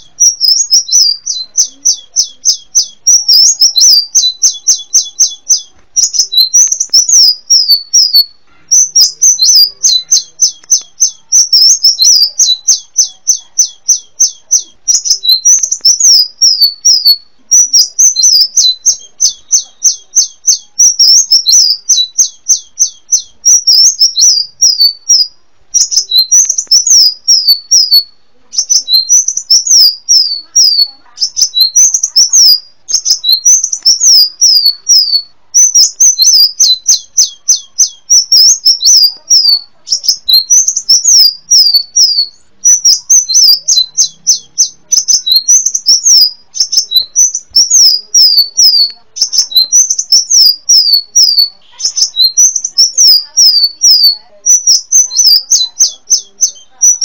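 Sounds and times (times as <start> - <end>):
sunbird singing: 0.0 - 57.0.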